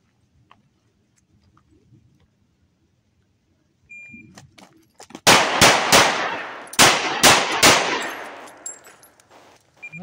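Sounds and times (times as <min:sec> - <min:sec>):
pistol shots: 0:05.2 - 0:08.8.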